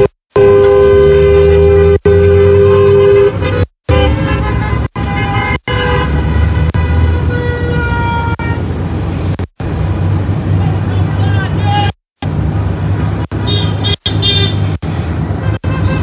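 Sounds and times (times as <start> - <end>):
car horns honking: 0.0 - 8.8, 13.3 - 16.0
road noise: 0.0 - 16.0.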